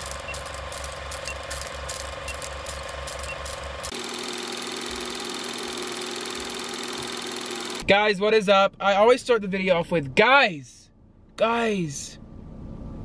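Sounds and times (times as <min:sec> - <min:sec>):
film projector clatter: 0:00.0 - 0:07.8
projector hum: 0:00.0 - 0:09.2.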